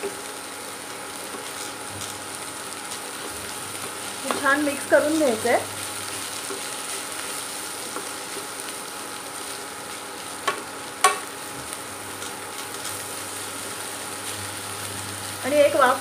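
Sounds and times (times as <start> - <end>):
vegetables sizzling in a pan: 0.0 - 16.0
spatula knocking on pan: 10.4 - 11.3.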